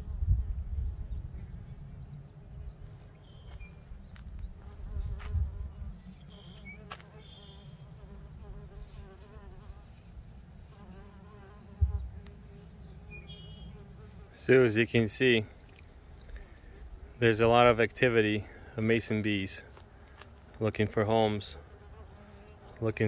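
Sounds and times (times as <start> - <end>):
bees buzzing: 4.6 - 14.6
thump: 11.8 - 12.1.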